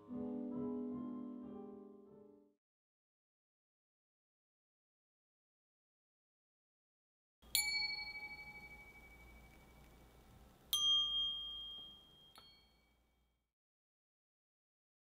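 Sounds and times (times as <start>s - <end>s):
bell-like chime notes: 7.5s - 10.1s, 10.7s - 13.0s.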